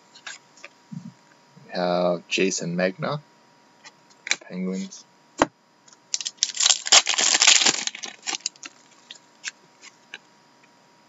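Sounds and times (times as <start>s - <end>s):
cards rustling: 6.2s - 9.2s.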